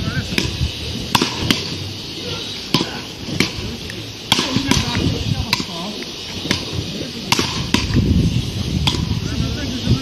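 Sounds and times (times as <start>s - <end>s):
paddle rackets striking ball: 0.3s - 1.8s, 2.7s - 8.1s, 8.8s - 9.2s.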